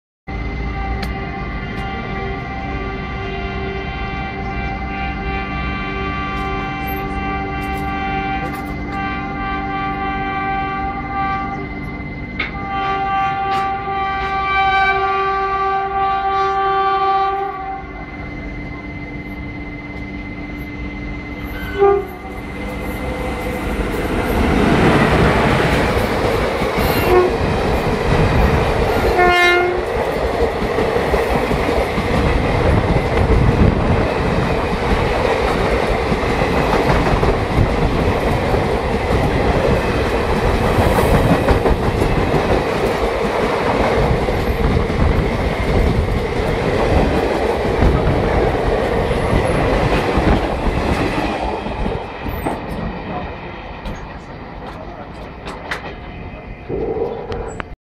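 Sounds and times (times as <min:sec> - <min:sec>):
train horn blast: 0:00.3 - 0:20.6, 0:21.4 - 0:26.0, 0:26.8 - 0:27.7, 0:28.4 - 0:30.1.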